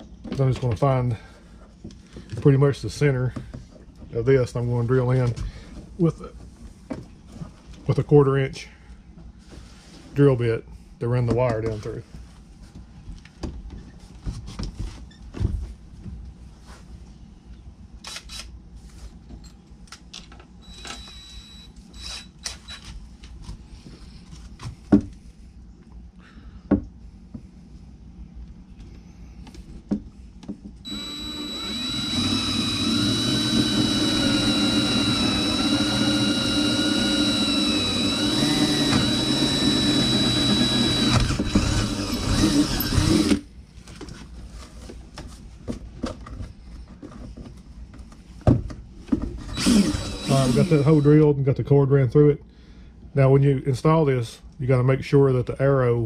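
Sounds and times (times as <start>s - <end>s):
cordless drill whining: 20.6s - 22.8s, 30.8s - 43.4s, 49.5s - 51.2s.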